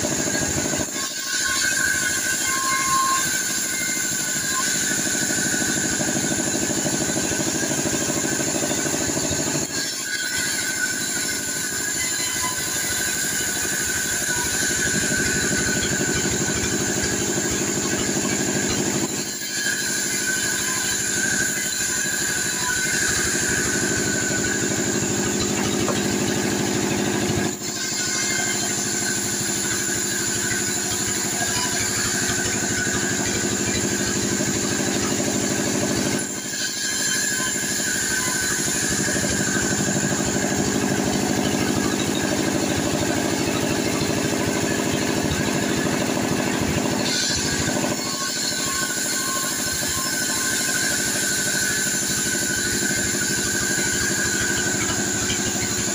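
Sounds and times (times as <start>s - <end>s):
band sawmill cutting log: 0.0s - 55.9s.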